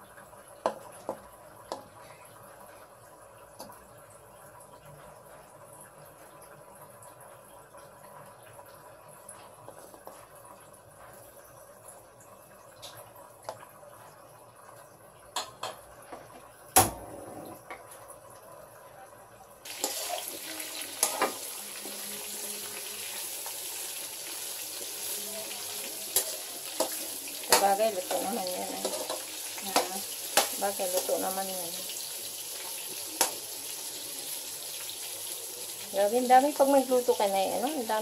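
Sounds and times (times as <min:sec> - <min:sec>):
meat sizzling in oil: 0:19.6 - 0:38.0.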